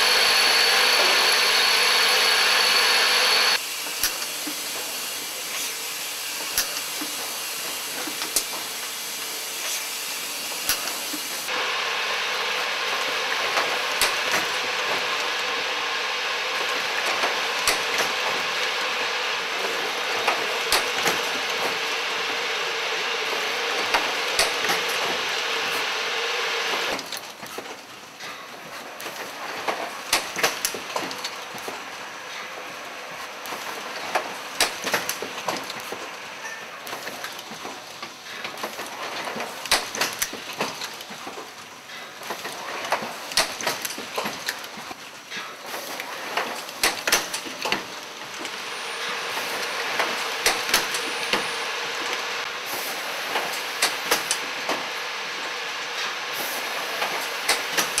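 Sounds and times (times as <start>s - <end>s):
steady mechanical hum: 0.0s - 58.0s
pneumatic grippers clicking: 3.9s - 5.8s, 6.4s - 11.5s, 17.0s - 18.4s, 19.6s - 21.8s, 23.8s - 25.1s, 33.4s - 54.9s, 56.0s - 58.0s.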